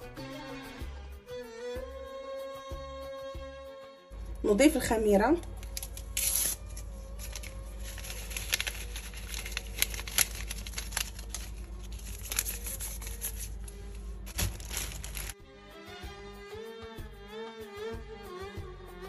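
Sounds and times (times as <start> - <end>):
steady low hum: 5.4 - 15.3
packaging crinkling: 5.5 - 15.4.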